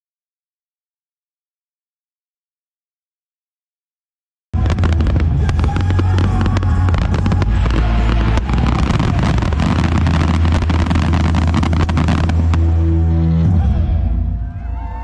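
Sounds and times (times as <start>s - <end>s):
fireworks cracking and banging: 4.6s - 12.8s
low rumble: 4.6s - 15.0s.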